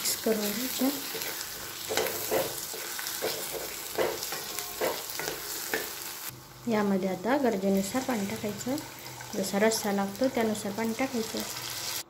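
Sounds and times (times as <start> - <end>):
oil sizzling: 0.0 - 12.0
spatula scraping pan: 0.5 - 6.2.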